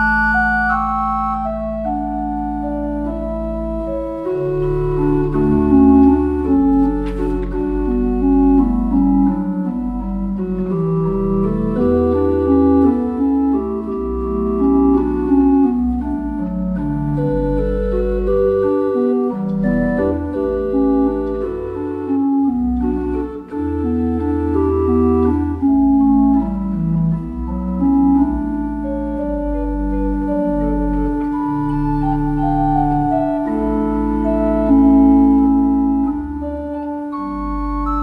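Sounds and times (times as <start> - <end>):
pipe organ playing: 0.0 - 38.0.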